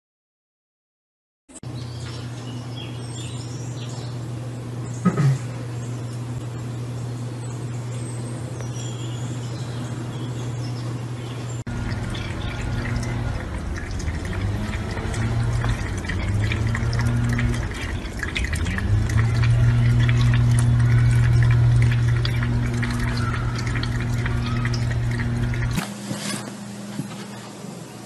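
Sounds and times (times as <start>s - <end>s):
steady low hum: 1.6s - 28.0s
tap water splashing into sink: 11.7s - 25.8s.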